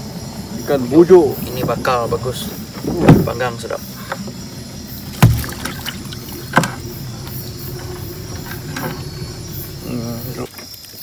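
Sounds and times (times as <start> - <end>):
fish thumping against boat hull: 5.0 - 9.6.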